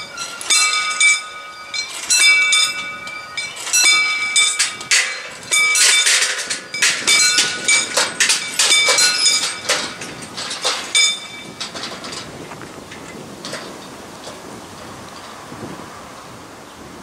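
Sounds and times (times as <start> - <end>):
level crossing bells ringing: 0.0 - 11.7.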